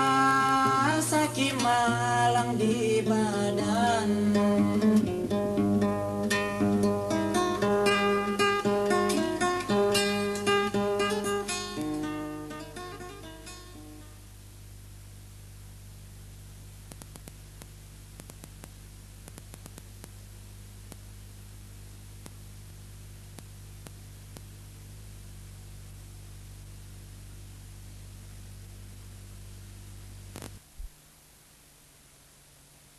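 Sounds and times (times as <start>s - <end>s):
low mains hum: 0.0s - 32.9s
tape hiss: 0.0s - 32.9s
crackling burst: 14.0s - 31.4s
clicks: 16.8s - 20.2s, 20.8s - 21.1s, 22.2s - 24.6s, 30.3s - 30.9s.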